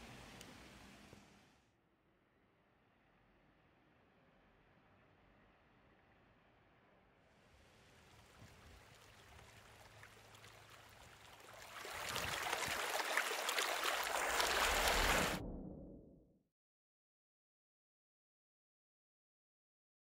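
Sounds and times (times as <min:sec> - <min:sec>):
fountain water splashing: 0:07.6 - 0:15.4.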